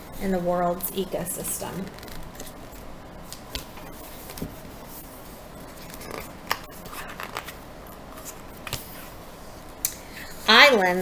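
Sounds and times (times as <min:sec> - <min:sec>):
book pages turning: 0:05.7 - 0:09.2
paper rustling: 0:05.7 - 0:09.2.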